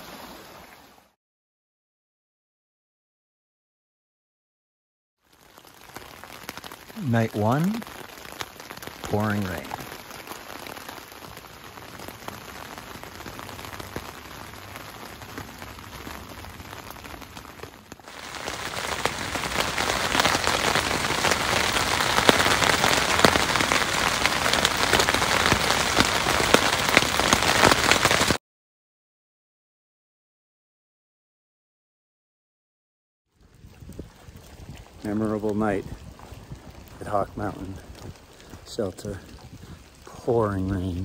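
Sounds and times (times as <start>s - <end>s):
rain pattering on tent: 5.2s - 28.4s, 33.3s - 41.0s.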